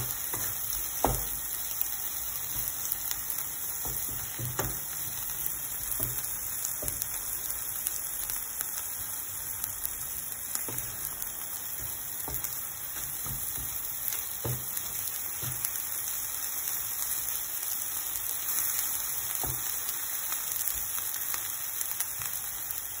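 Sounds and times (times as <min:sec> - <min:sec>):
wooden spatula knocking on pan: 0:00.0 - 0:01.5, 0:03.6 - 0:07.2, 0:10.5 - 0:15.8, 0:19.3 - 0:19.7
food sizzling in frying pan: 0:00.0 - 0:23.0.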